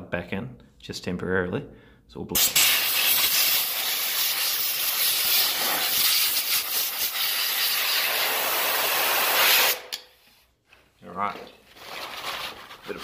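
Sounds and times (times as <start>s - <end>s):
compressed air hissing: 2.4s - 9.9s.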